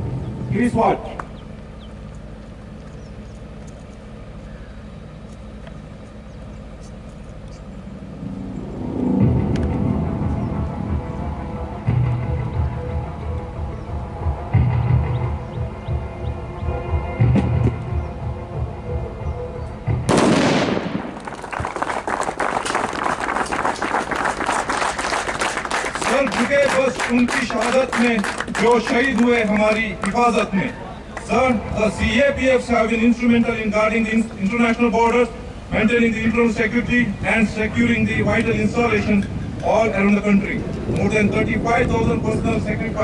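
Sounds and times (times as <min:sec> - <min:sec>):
low engine hum: 0:00.0 - 0:43.0
explosive blast: 0:20.1 - 0:21.3
crowd clapping: 0:21.1 - 0:31.4.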